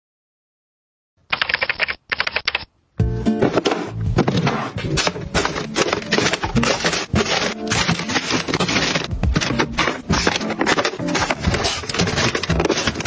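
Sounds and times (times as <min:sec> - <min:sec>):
objects being handled and sorted: 0:03.3 - 0:13.0.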